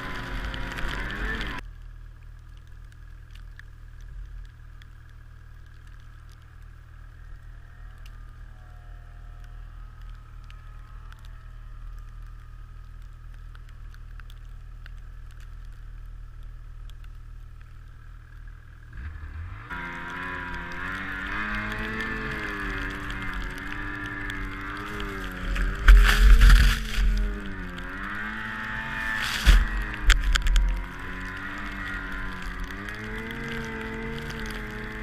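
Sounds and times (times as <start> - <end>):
distant snowmobile engine revving: 0.0 - 1.6, 18.8 - 35.0
snowmobile engine idling: 0.0 - 35.0.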